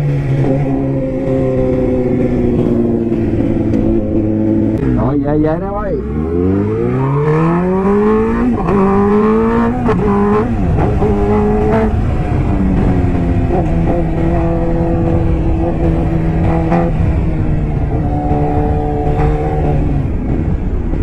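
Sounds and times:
motorcycle engine running: 0.0 - 6.8, 7.6 - 21.0.

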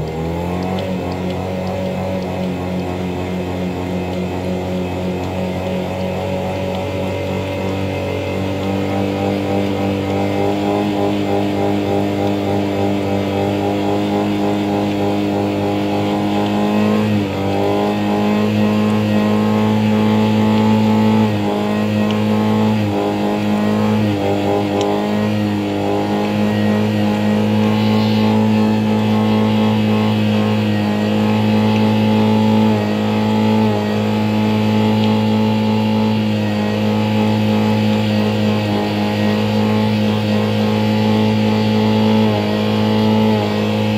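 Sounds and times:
car engine revving high: 0.0 - 43.9.

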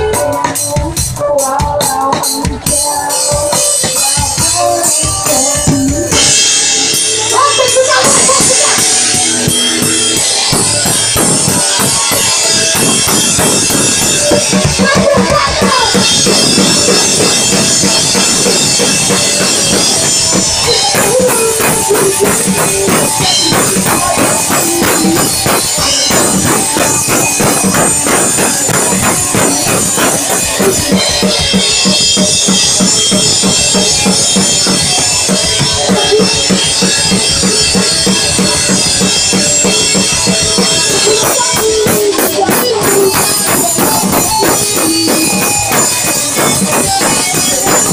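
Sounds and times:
woman singing: 0.0 - 6.2, 7.3 - 8.9, 14.6 - 16.1, 20.6 - 26.4
distorted electric guitars: 0.0 - 47.9
fast drums: 0.0 - 47.9.

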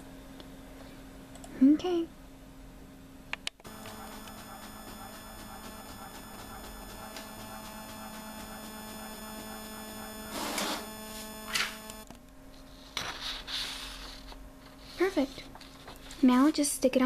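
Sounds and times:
inkjet printer printing: 3.7 - 12.1.

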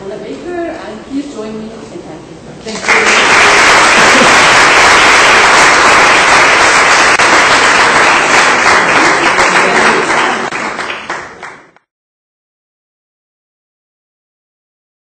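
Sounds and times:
audience applauding: 2.8 - 11.8.

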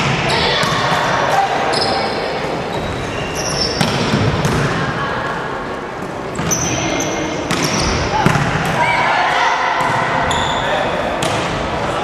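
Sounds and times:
voices echoing in a hall: 0.0 - 12.0
sneakers squeaking on wooden court: 1.7 - 4.6, 6.3 - 8.0, 10.2 - 11.4
volleyball hits: 3.7 - 5.0, 9.6 - 10.3, 11.1 - 11.8.

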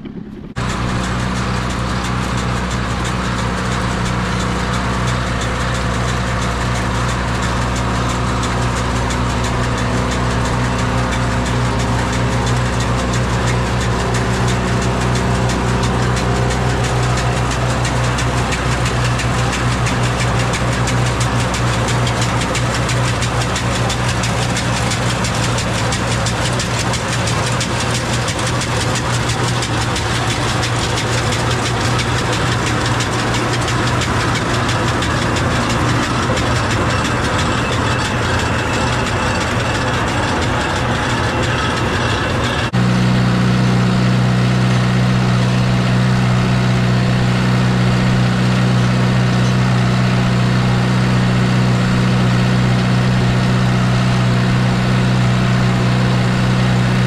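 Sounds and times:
pea picker reel rattling: 0.0 - 42.7
tractor engine running: 0.0 - 57.0.

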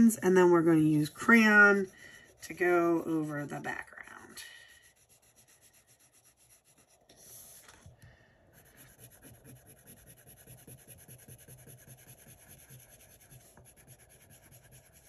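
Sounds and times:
crayon scratching on paper: 0.0 - 7.7, 8.5 - 15.0
paper rustle: 7.1 - 8.0.

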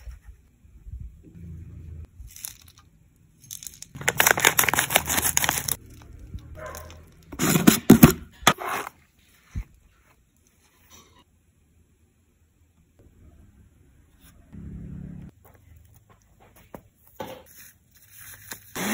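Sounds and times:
crackling of plastic packaging: 2.3 - 7.3.

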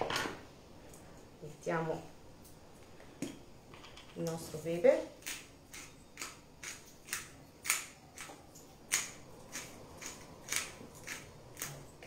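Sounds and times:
pepper mill grinding: 5.2 - 12.0.

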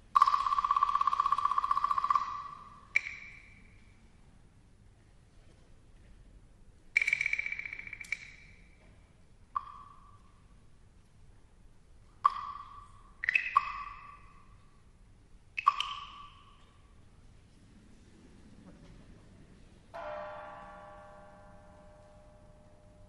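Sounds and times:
small metal gongs ringing: 20.0 - 23.0.

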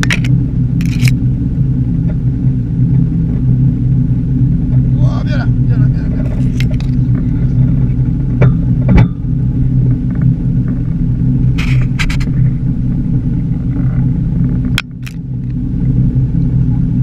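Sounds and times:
gear knocking and clicking: 0.0 - 1.2
boat engine rumbling: 0.0 - 17.0.

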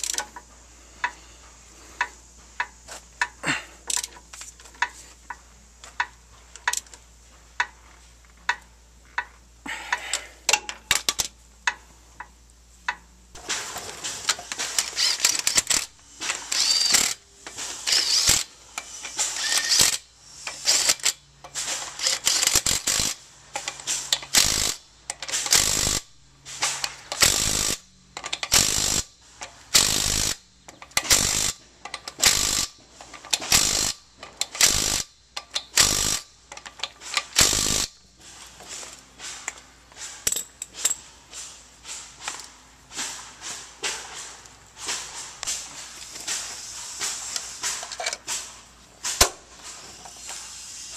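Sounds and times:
hand ratchet clicks: 0.0 - 1.2, 2.0 - 7.0, 8.5 - 13.0, 14.2 - 38.0
impact wrench hammering: 29.7 - 38.0.

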